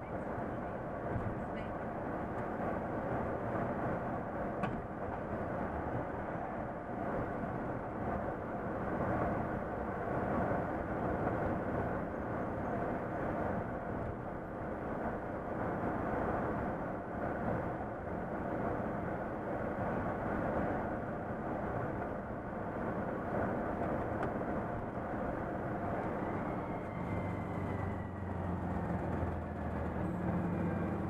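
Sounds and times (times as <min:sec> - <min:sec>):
tyre and road noise: 0:21.7 - 0:31.0
diesel truck engine running: 0:26.1 - 0:31.0.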